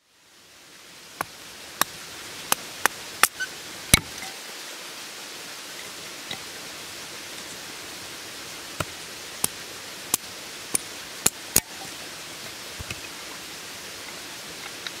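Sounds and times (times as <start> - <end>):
steady hiss: 0.0 - 15.0
hatchet chopping wood: 8.8 - 11.7.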